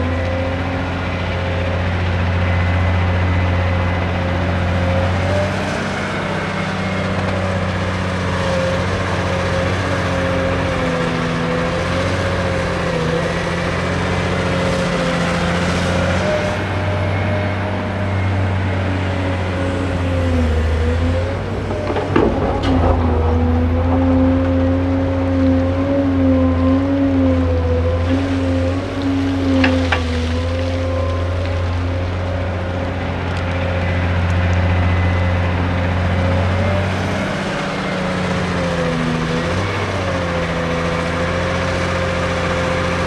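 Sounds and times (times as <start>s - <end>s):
excavator diesel engine running: 0.0s - 43.0s.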